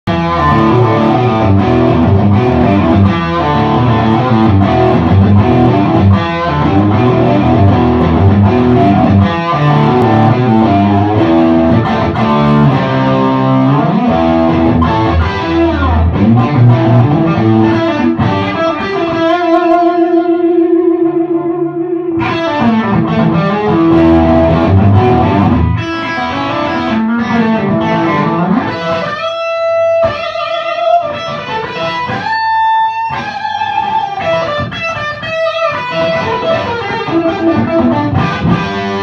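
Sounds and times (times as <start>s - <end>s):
electric guitar through amplifier: 0.0s - 39.0s.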